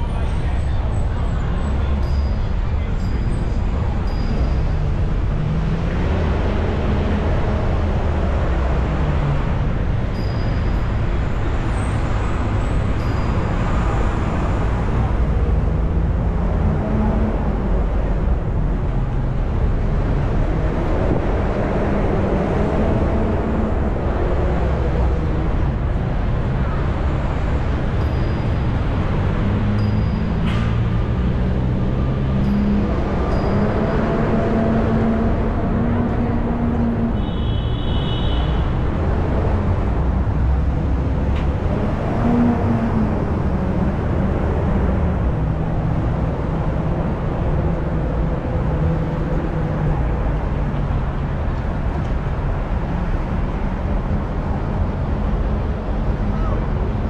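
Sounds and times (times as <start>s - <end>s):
city traffic rumble: 0.0s - 57.0s.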